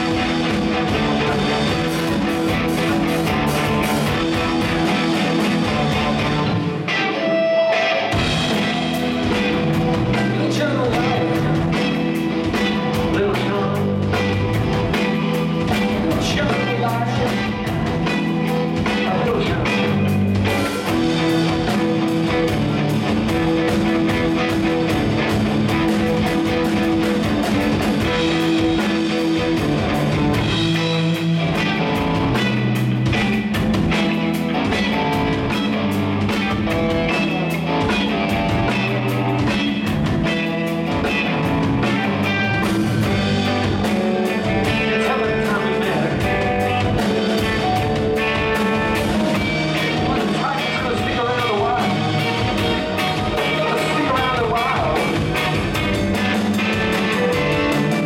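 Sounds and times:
bass guitar: 0.0s - 58.0s
drums: 0.0s - 58.0s
electric guitar: 0.0s - 58.0s.

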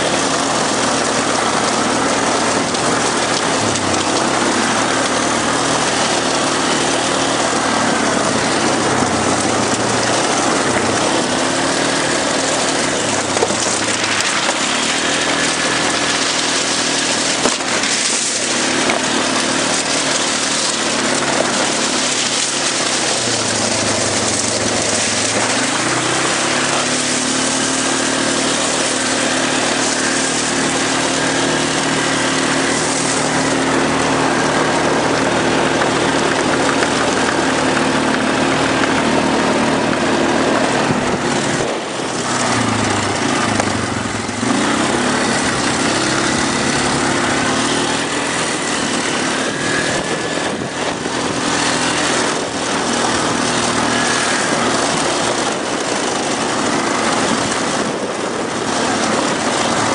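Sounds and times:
atv engine revving: 0.0s - 59.9s
steady rushing noise: 0.0s - 59.9s.

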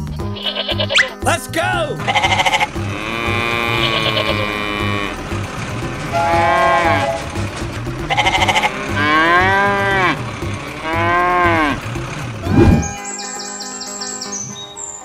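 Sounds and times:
background music with steady beat: 0.0s - 13.0s
sheep bleating: 0.2s - 1.2s, 2.0s - 5.3s, 6.1s - 7.4s, 8.1s - 11.9s
cow mooing: 2.0s - 5.3s, 6.1s - 7.4s, 8.1s - 13.0s.

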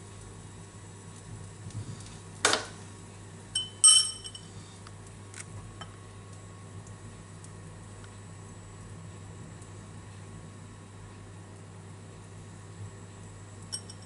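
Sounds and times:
metal spoon clinking crockery: 3.6s - 4.4s, 13.8s - 14.0s.

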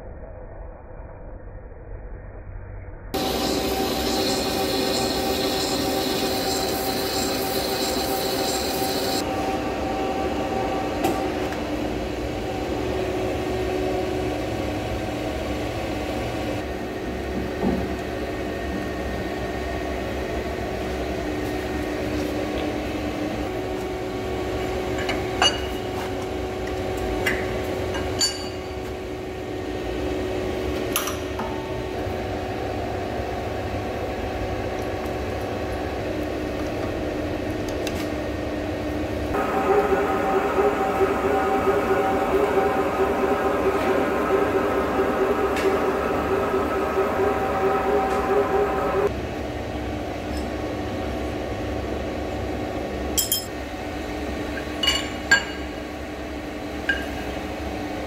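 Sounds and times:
lathe tool cutting steel hiss: 3.2s - 9.3s
lathe humming: 3.2s - 14.0s, 39.3s - 49.2s.

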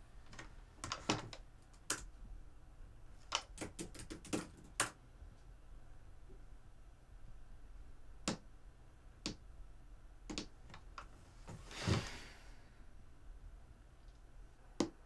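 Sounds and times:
person breathing out: 11.6s - 12.9s.

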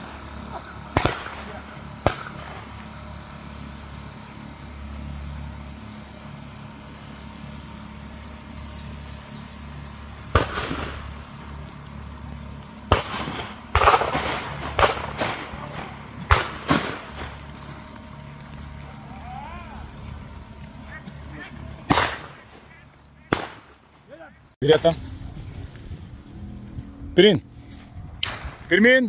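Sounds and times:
sharp bangs: 0.0s - 3.0s, 10.2s - 11.2s, 12.8s - 17.8s, 21.4s - 24.2s, 28.1s - 28.9s
steady low hum: 0.0s - 29.0s.

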